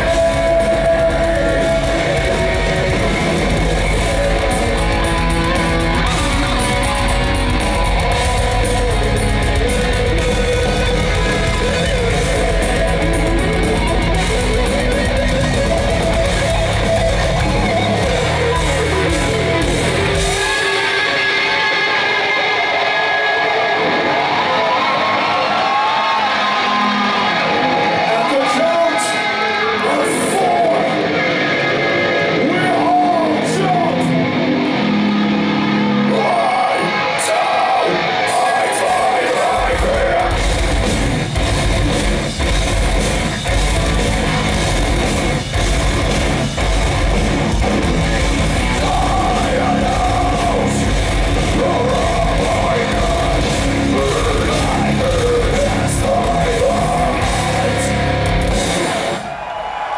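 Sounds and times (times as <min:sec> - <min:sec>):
sung and shouted vocals: 0:00.0 - 0:14.2, 0:32.2 - 0:41.3, 0:47.8 - 0:59.5
drums and bass guitar: 0:00.0 - 0:23.0, 0:38.3 - 0:59.3
heavy metal band playing live: 0:00.0 - 0:59.4.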